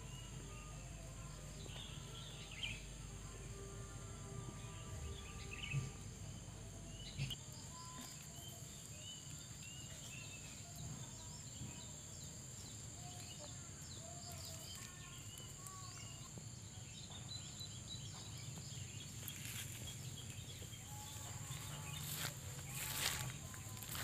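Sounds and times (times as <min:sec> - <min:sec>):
high-pitched insect drone: 0:20.6 - 0:24.0.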